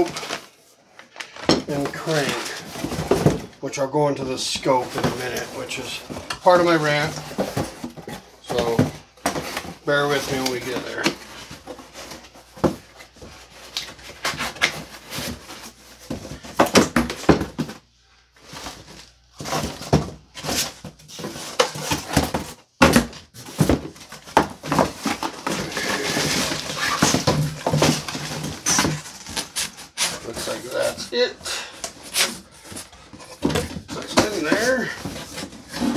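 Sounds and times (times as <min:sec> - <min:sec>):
cardboard box being handled: 0:04.8 - 0:17.7, 0:23.4 - 0:35.9.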